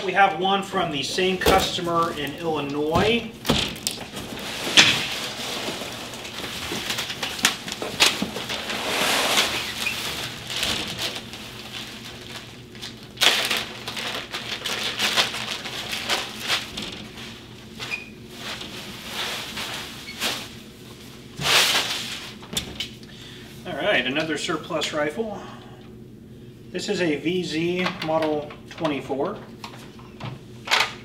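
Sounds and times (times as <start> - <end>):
paper and plastic bag rustling: 0.7 - 22.6.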